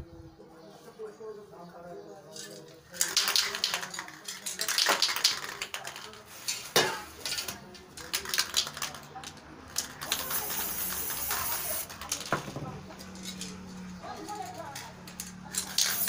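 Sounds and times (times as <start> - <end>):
spray can ball rattling: 2.4 - 16.0
spray paint hissing: 3.0 - 4.0, 8.1 - 9.1, 9.7 - 12.3, 15.5 - 16.0.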